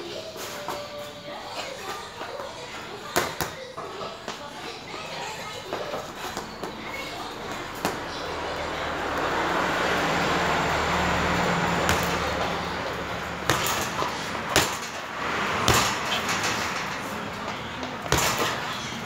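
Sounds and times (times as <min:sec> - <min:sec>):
passing vehicle rumble: 0:06.8 - 0:19.0
punches thudding on heavy bag: 0:13.4 - 0:15.0, 0:15.6 - 0:16.6, 0:18.0 - 0:18.7.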